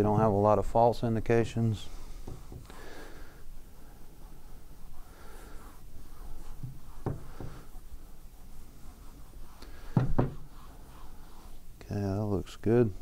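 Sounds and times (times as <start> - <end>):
cloth rubbing on metal plate: 3.6 - 13.0
dull knocks: 6.6 - 7.6, 10.0 - 10.4.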